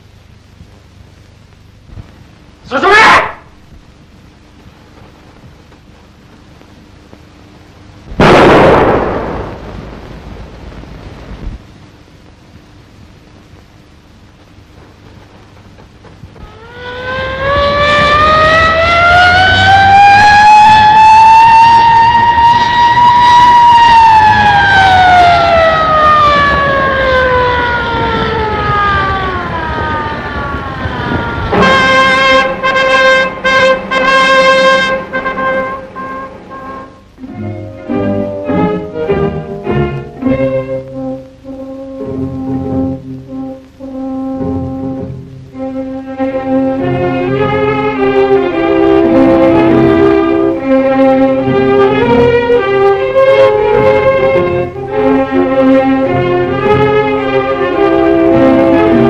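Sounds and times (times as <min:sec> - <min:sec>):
siren wailing: 0:16.4 - 0:59.0.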